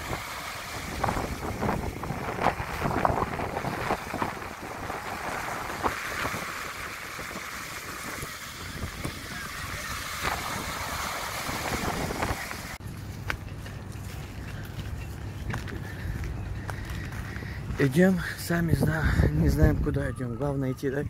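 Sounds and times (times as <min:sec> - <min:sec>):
waves washing up pebble beach: 0:00.0 - 0:12.8
wind on microphone: 0:00.0 - 0:12.8, 0:14.9 - 0:21.0.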